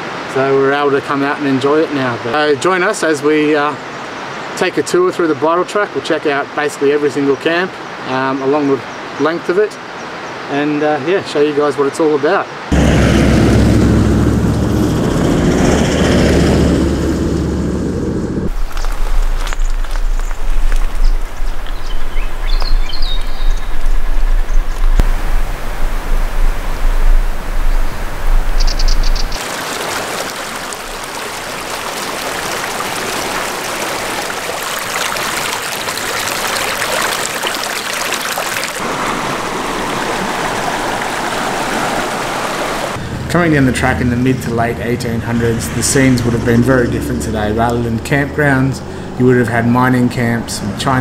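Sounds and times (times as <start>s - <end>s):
vehicle engine running: 12.7s - 18.5s, 43.0s - 48.9s
tyres on gravel: 18.3s - 23.1s
river water rushing over rocks: 29.4s - 43.0s.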